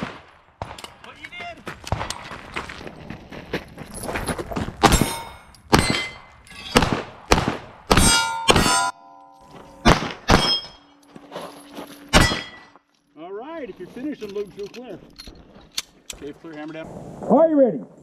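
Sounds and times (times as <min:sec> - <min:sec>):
pistol shots: 0:04.8 - 0:08.8, 0:09.8 - 0:10.7
steel targets clanging: 0:04.9 - 0:06.8, 0:07.9 - 0:12.8.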